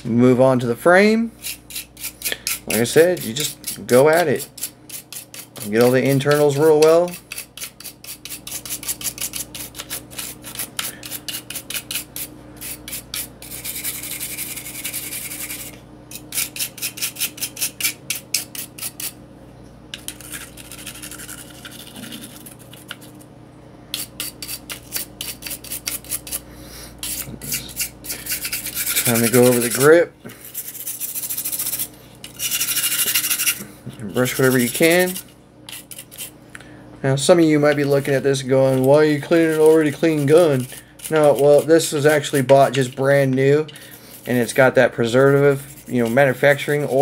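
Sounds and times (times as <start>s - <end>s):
brush scrubbing plastic: 1.5s - 15.8s, 27.0s - 33.6s, 34.2s - 36.3s, 37.6s - 43.2s, 44.1s - 47.0s.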